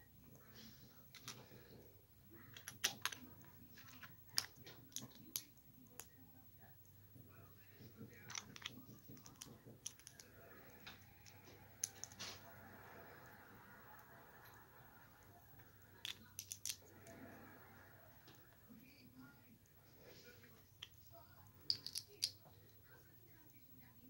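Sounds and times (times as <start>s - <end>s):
plastic bricks clicking together: 2.5s - 6.1s, 8.2s - 10.3s, 16.0s - 16.9s, 21.7s - 22.4s.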